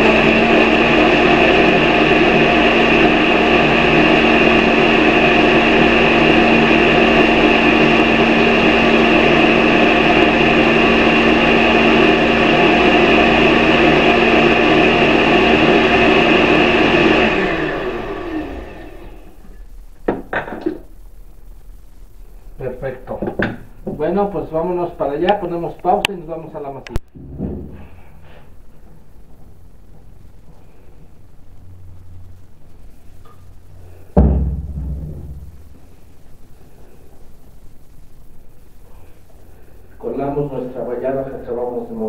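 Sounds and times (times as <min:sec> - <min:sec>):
blender running: 0:00.0 - 0:19.4.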